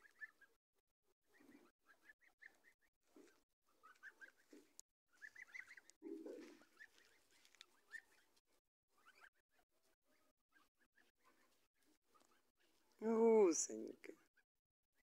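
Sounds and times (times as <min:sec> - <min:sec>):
goslings peeping: 0:00.0 - 0:00.5, 0:01.3 - 0:08.4, 0:09.0 - 0:09.6.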